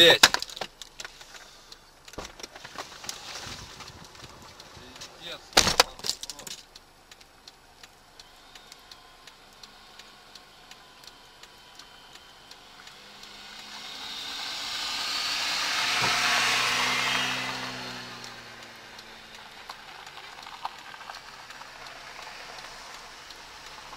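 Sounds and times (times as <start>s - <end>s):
faint steady ticking: 0.0s - 23.9s
car passing by: 8.4s - 23.9s.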